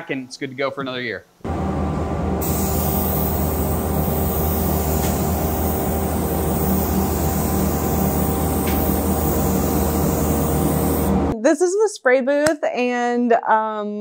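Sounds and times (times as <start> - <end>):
machine drone: 1.5 - 11.4
spray nozzle hissing: 2.4 - 11.4.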